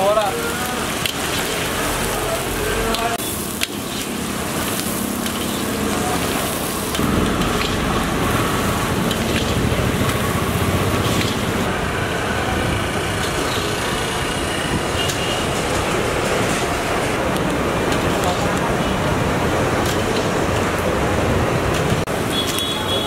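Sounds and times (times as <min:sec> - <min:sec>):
onions sizzling in a pan: 0:00.0 - 0:16.2
passing vehicles and motorbikes: 0:00.0 - 0:23.0.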